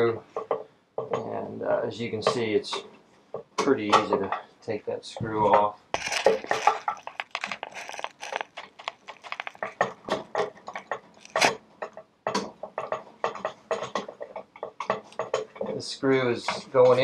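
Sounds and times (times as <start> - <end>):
screwdriver clicking and scraping: 6.0 - 11.6.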